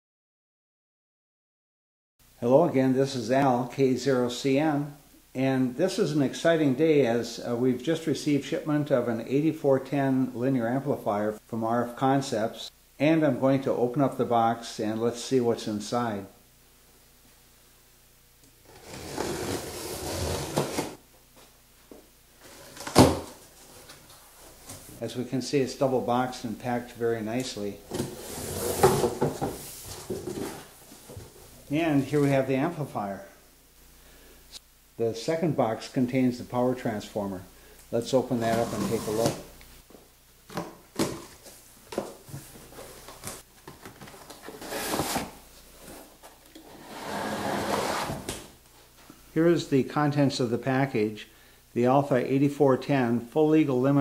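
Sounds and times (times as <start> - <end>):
cardboard box flaps scraping: 18.7 - 21.0, 46.7 - 48.4
cardboard and foam rustling: 27.9 - 31.5, 38.3 - 39.4.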